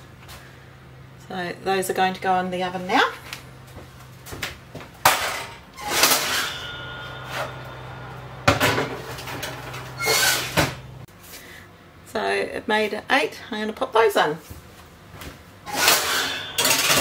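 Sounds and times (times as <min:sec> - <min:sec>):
low steady hum: 0:00.0 - 0:12.6
metal tray clattering and scraping: 0:05.0 - 0:11.1, 0:15.7 - 0:17.0.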